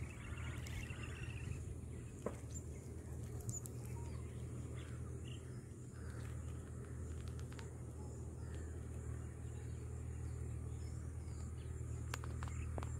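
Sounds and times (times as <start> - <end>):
bird trilling: 0.0 - 2.8
steady low hum: 0.0 - 12.9.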